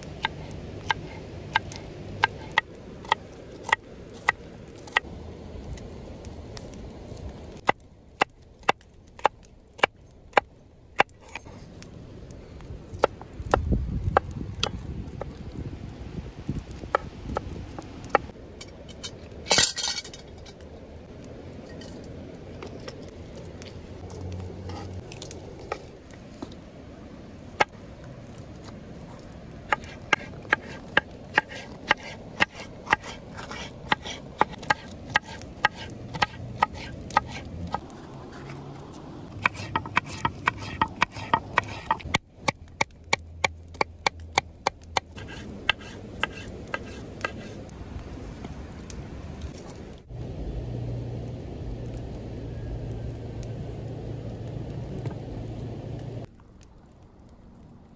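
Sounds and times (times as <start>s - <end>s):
knife chopping on wooden board: 29.7s - 37.4s, 39.4s - 42.0s.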